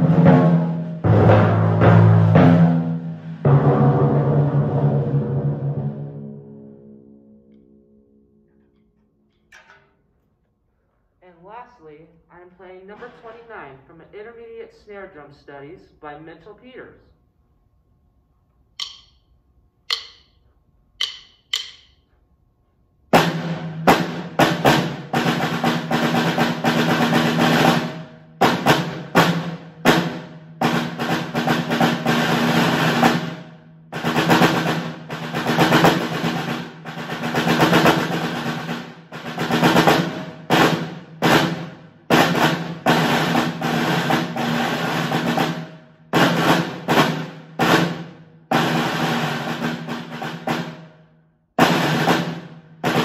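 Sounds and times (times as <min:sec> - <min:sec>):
snare drum rolls and strokes: 0:00.0 - 0:06.8, 0:18.8 - 0:19.2, 0:19.9 - 0:20.4, 0:21.0 - 0:22.0, 0:23.1 - 0:51.0, 0:51.6 - 0:53.0.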